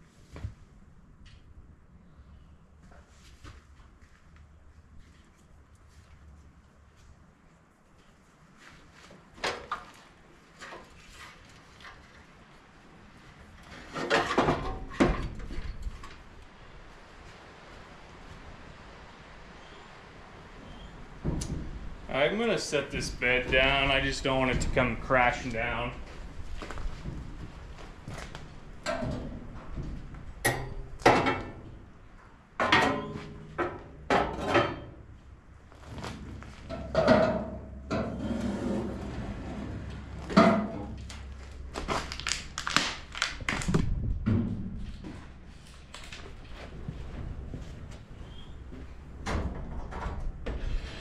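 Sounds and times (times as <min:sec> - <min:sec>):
knocks and clatter on metal frame: 0:13.7 - 0:16.2, 0:21.2 - 0:22.0, 0:26.8 - 0:31.8, 0:32.6 - 0:35.1, 0:36.1 - 0:38.7, 0:39.8 - 0:41.3, 0:43.8 - 0:48.0, 0:48.8 - 0:50.8.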